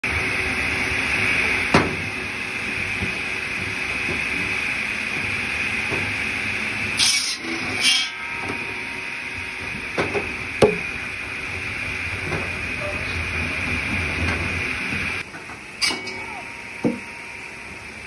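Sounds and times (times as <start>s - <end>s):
circular saw humming: 5.6s - 13.4s.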